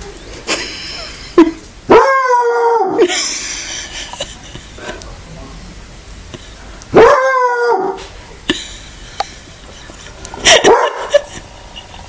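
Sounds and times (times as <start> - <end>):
hound howling: 7.0 - 8.0.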